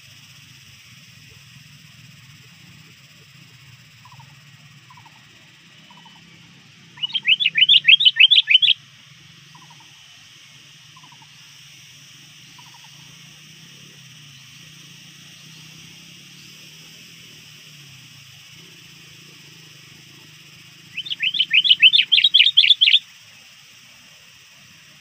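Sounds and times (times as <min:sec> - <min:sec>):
bird chirping rapidly: 0:05.8 - 0:08.8, 0:20.8 - 0:23.0.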